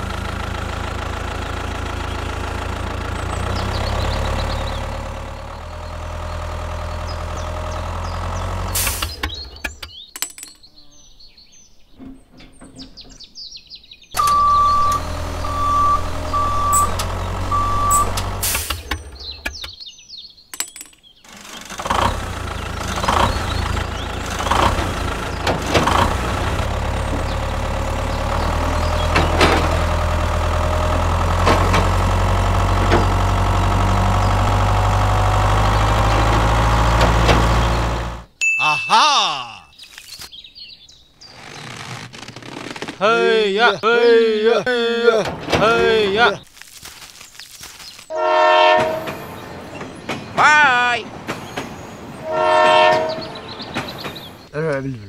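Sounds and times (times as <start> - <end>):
tractor engine idling: 0.0 - 10.0, 14.2 - 19.8, 21.2 - 38.4, 43.0 - 46.4.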